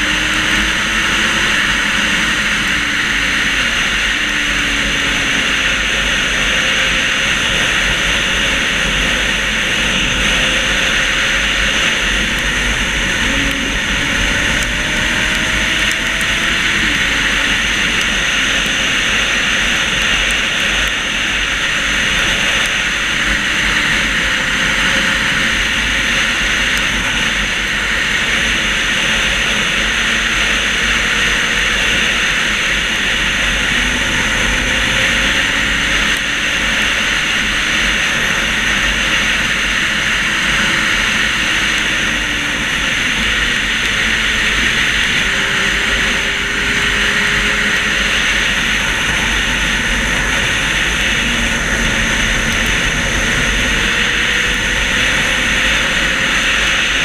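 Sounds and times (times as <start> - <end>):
motorcycle engine: 0.0 - 57.0
wind rushing over camera: 0.0 - 57.0.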